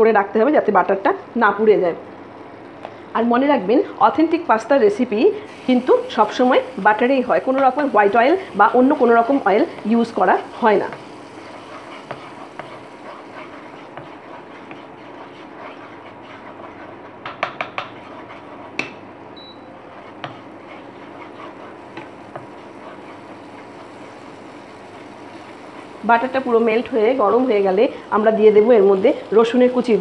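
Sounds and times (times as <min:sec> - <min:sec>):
butter sizzling in frying pan: 0:05.5 - 0:30.0.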